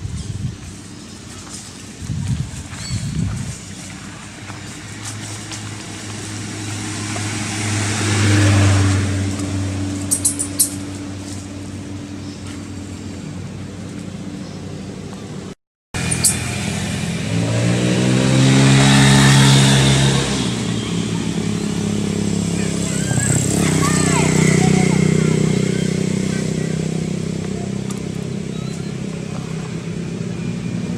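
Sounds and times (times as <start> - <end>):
vehicle engine running: 0.0 - 30.9
engine revving up: 4.9 - 11.3, 16.0 - 30.9.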